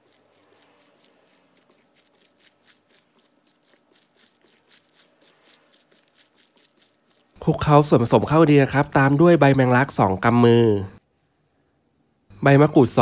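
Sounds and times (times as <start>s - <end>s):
hands squelching wet mixture: 0.0s - 10.0s.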